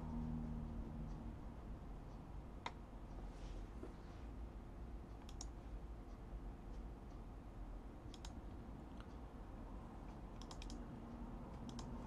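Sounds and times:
low steady hum: 0.0s - 12.0s
computer clicks: 5.1s - 5.6s, 8.0s - 9.2s, 10.3s - 10.9s, 11.5s - 12.0s.

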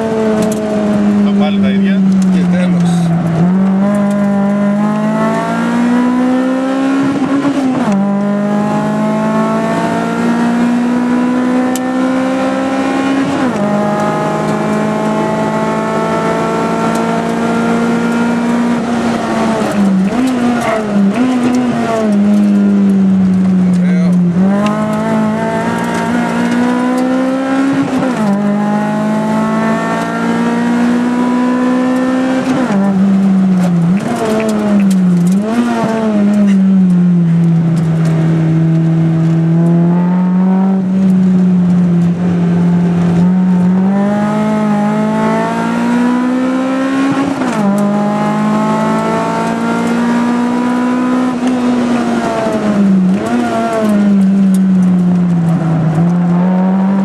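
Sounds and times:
car engine revving: 0.0s - 57.0s.

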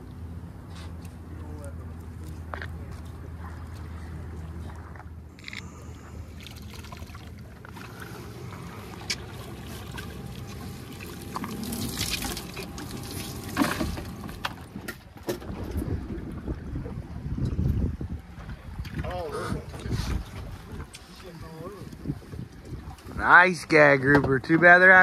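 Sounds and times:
water streaming and dripping: 5.9s - 14.8s.

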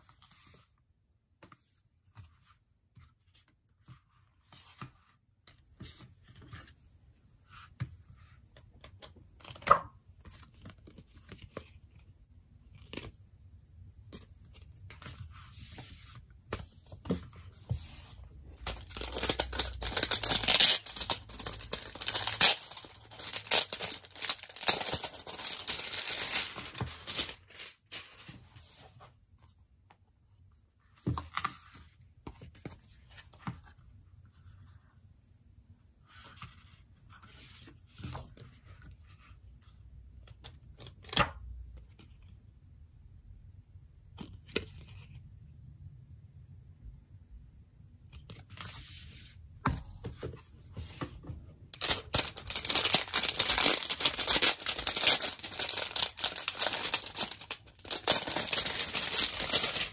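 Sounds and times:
paper rustling: 14.1s - 29.1s, 48.3s - 59.9s
paper sliding: 19.0s - 28.9s.

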